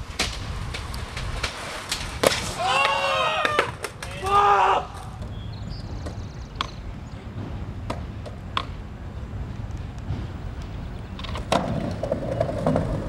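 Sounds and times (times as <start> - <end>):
low street hum: 0.0 - 13.0
person shouting: 2.6 - 5.0
skateboard clacking on concrete steps: 7.8 - 8.8, 11.1 - 13.0.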